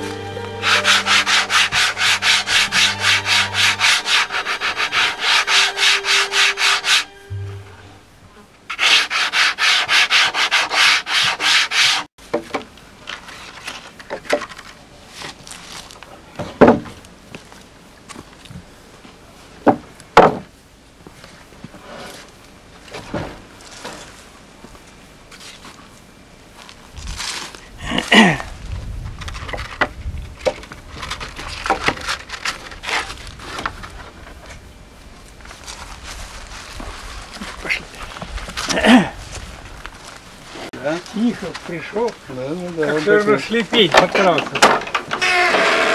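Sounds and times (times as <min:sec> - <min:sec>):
sanding block on wood: 0:00.5 - 0:07.3, 0:08.7 - 0:12.1
wooden boards knocking: 0:16.6 - 0:16.9, 0:19.7 - 0:20.5
short falling squeak: 0:45.2 - 0:45.9.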